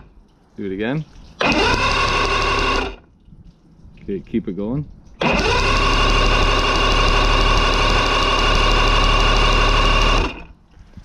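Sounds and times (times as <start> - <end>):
electric starter cranking engine: 1.4 - 3.1, 5.2 - 10.6.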